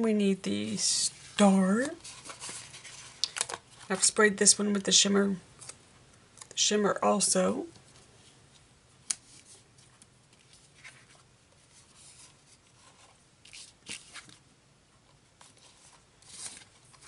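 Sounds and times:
sticker sheets rustling and sliding: 0.6s - 4.1s, 15.4s - 17.0s
paper rustles: 1.3s - 4.1s, 9.1s - 14.4s, 15.4s - 17.0s.

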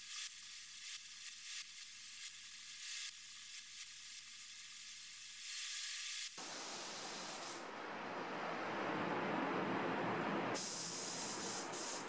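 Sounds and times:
spray gun hissing: 6.4s - 12.0s.

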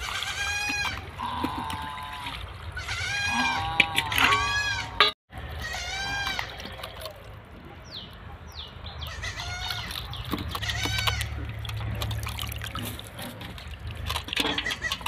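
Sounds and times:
farm animals calling: 0.0s - 12.9s, 14.4s - 15.0s
hands splashing in water basin: 9.6s - 15.0s.

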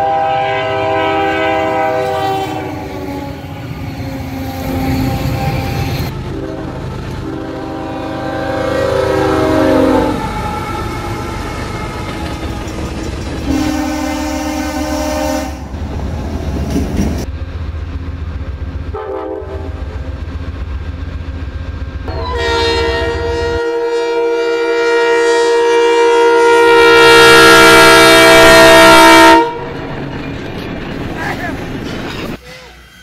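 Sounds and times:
locomotive air horn: 0.0s - 12.2s, 13.4s - 15.7s, 18.9s - 19.9s, 22.1s - 29.7s
train rumble: 0.0s - 24.0s, 26.4s - 33.0s.

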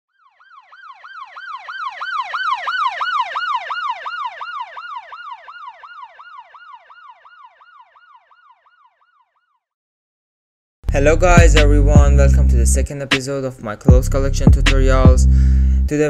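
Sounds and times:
siren yelping: 0.1s - 9.6s.

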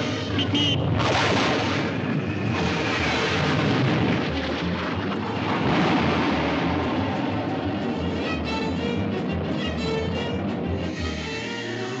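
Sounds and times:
cartoon rocket rushing: 0.7s - 7.0s.

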